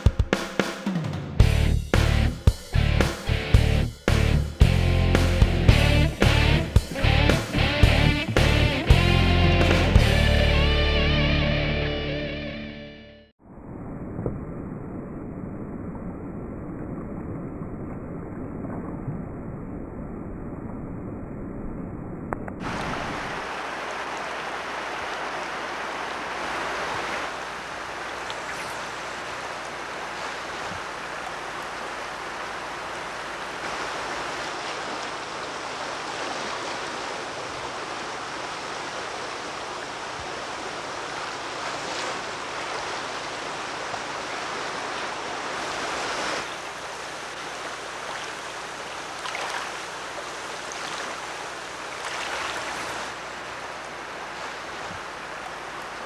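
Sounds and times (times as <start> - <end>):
river water over rocks: 22.6 - 56.0.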